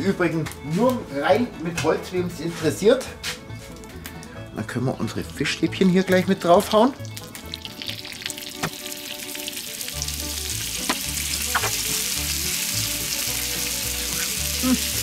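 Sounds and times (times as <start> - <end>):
food sizzling on a hot plate: 7.0 - 15.0.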